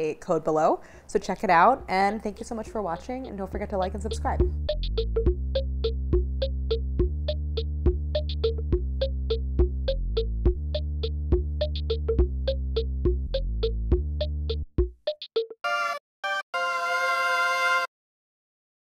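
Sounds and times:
sustained synthesizer bass: 4.3 - 14.7.

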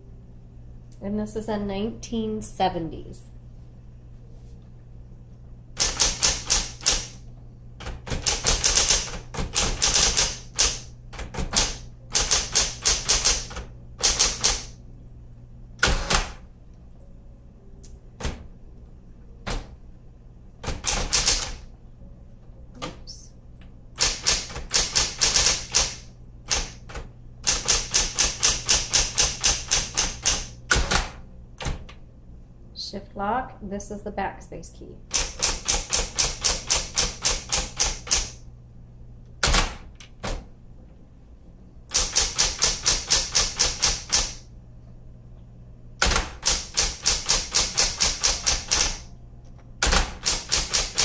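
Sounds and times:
steady low hum: 0.0 - 51.0
electric typewriter keystrokes: 5.8 - 7.2, 7.8 - 14.8, 15.8 - 16.4, 17.8 - 18.5, 19.4 - 19.8, 20.6 - 21.7, 24.0 - 32.0, 35.1 - 38.4, 39.4 - 40.5, 41.9 - 44.5, 46.0 - 51.0.

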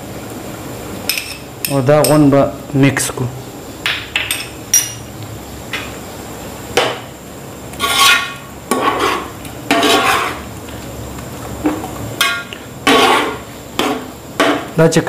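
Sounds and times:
metal spoon scraping a pot: 7.8 - 10.4, 12.2 - 14.0.

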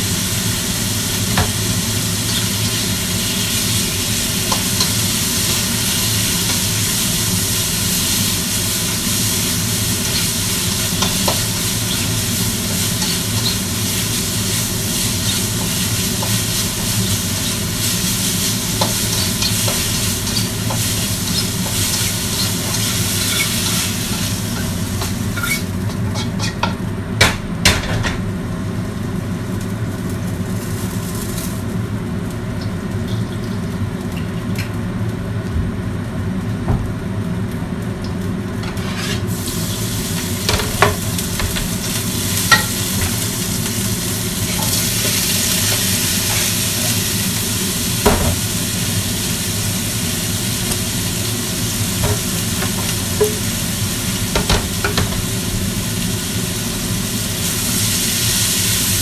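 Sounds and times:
sizzling in a wok: 0.0 - 59.0
spatula stirring: 18.3 - 24.7.

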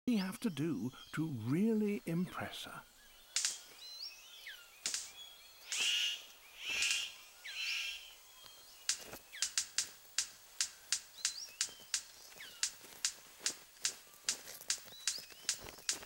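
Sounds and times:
harsh rasping bird calls: 0.1 - 16.0
sharp snapping clicks: 3.3 - 3.8, 4.8 - 5.9, 8.8 - 16.0.

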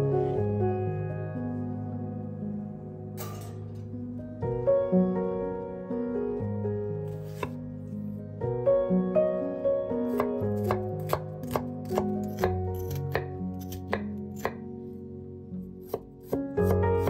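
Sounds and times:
soft background music: 0.0 - 17.0
knife chopping on wooden board: 7.2 - 7.6, 10.1 - 14.6, 15.8 - 17.0.

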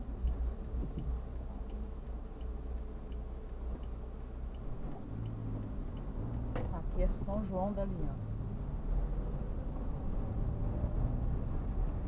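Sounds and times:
faint light ticking: 0.0 - 8.7
car engine and road rumble: 0.0 - 12.0.

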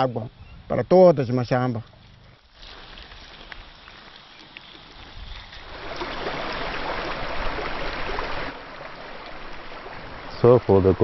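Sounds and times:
stream water rushing over rock: 2.4 - 11.0.

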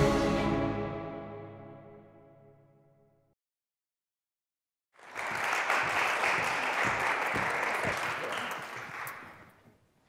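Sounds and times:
audience applauding: 5.0 - 9.6.

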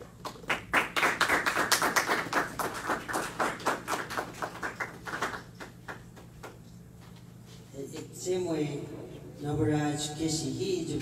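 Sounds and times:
people clapping: 0.1 - 6.6.

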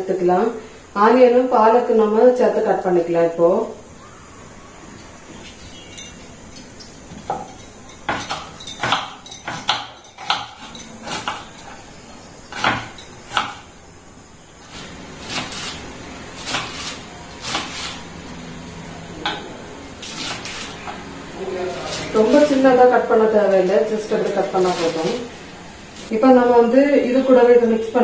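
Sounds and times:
knife chopping on wooden board: 8.1 - 11.5, 16.4 - 18.0.

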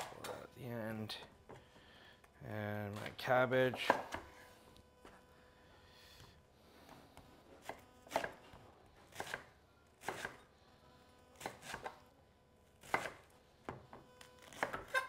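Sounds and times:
knife chopping cabbage on wood: 7.6 - 8.4, 9.1 - 10.4, 11.4 - 12.0, 12.8 - 13.2, 14.4 - 15.0.

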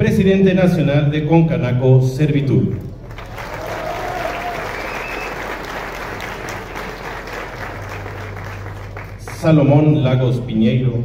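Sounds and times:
audience applauding: 3.0 - 9.8.

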